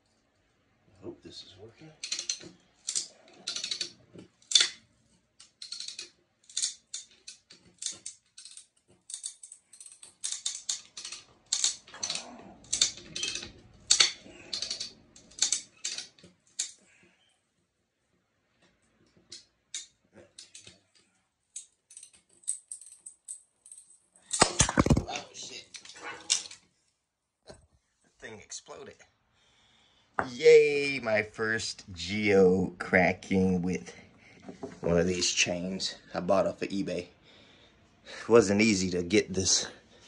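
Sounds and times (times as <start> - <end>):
pipe cutter chain clicking: 2.0 - 4.8, 5.4 - 17.0.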